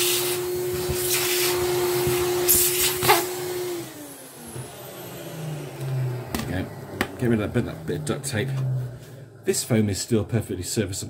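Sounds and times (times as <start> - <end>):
vacuum cleaner whine: 0.0 - 10.0
vacuum winding down: 0.0 - 10.2.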